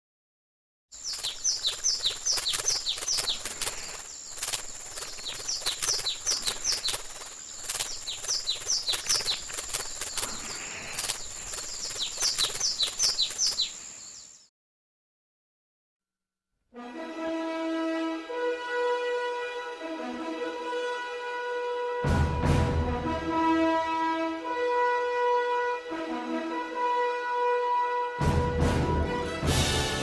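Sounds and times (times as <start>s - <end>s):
birds chirping: 1.0s - 14.5s.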